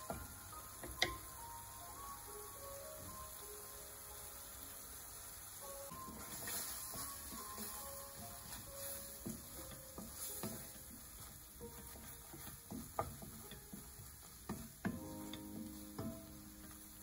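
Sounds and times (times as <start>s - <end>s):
sauce sizzling in a pan: 0.0s - 17.0s
wooden spatula scraping a pan: 5.9s - 17.0s.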